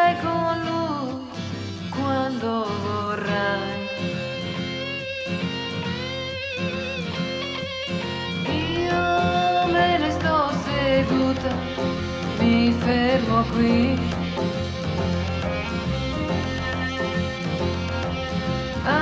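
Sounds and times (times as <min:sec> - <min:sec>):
woman singing with vibrato: 0:00.0 - 0:04.7, 0:08.4 - 0:14.6, 0:18.7 - 0:19.0
band accompaniment: 0:09.8 - 0:19.0.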